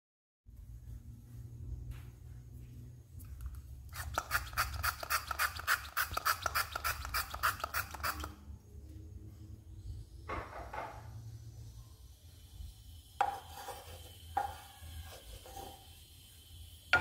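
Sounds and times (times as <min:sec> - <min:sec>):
oil sprayer hissing sprays: 0:03.9 - 0:08.5.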